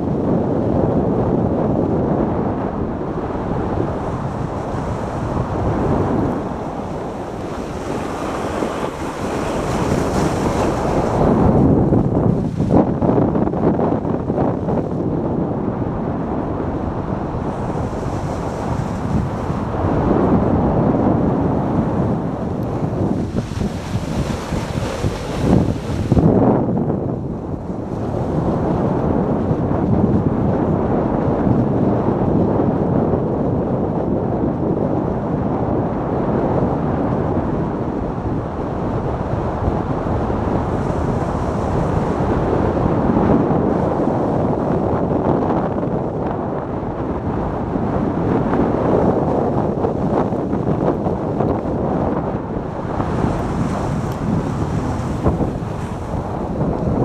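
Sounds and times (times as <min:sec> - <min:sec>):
wind on microphone: 0:00.0 - 0:57.0.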